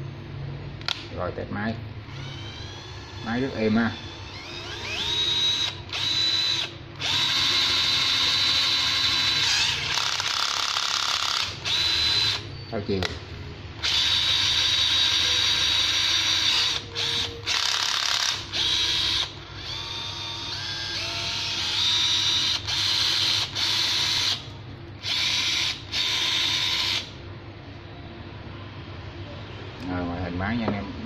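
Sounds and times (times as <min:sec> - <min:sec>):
cordless drill motor whine: 0:02.1 - 0:12.5, 0:13.8 - 0:24.4, 0:25.0 - 0:27.1.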